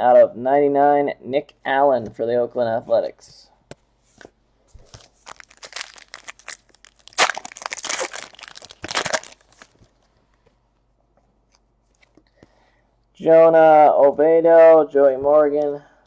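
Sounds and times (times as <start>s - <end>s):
foil wrapper tearing and crinkling: 5.0s - 9.9s.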